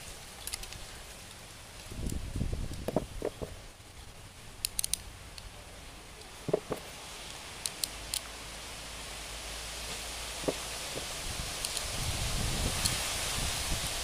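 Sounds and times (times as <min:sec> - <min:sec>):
faint sharp ticks: 0:12.8 - 0:13.0.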